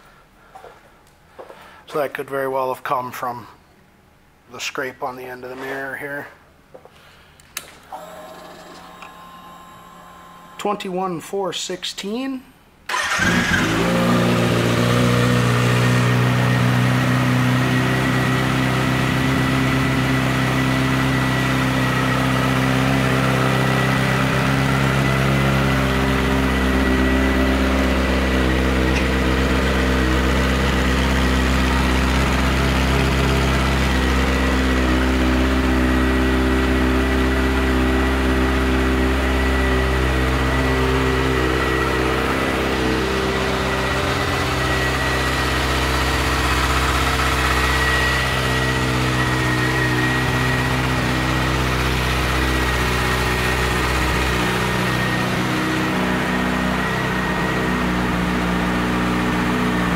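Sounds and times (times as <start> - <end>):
motorcycle engine idling: 12.9 - 59.9.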